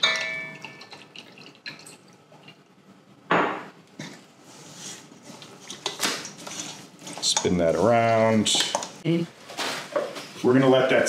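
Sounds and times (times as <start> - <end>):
metal bowl ringing: 0.0 - 0.8
oil pouring and dripping: 0.6 - 2.7.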